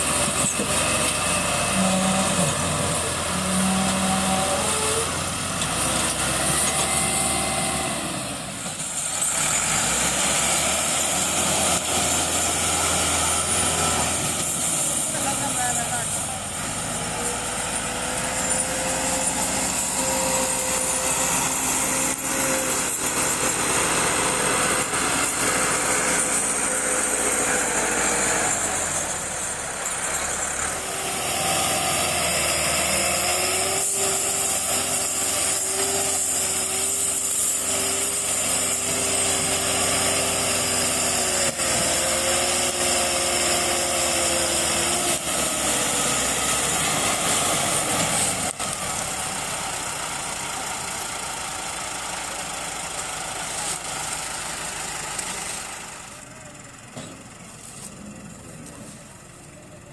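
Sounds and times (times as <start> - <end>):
tractor diesel engines straining: 0.0 - 59.9.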